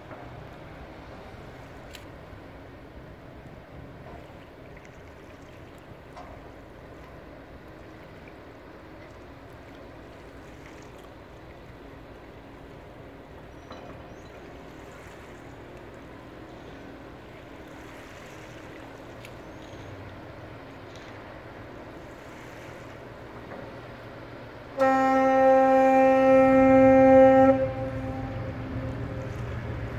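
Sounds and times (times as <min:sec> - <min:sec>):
ship engine humming: 0:00.0 - 0:29.9
ship's horn blast: 0:24.5 - 0:29.9.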